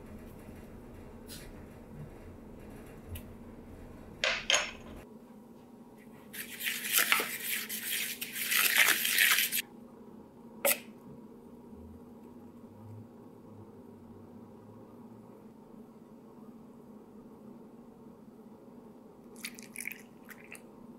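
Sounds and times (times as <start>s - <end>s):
wooden spoon scraping plastic bowl: 6.4s - 9.6s.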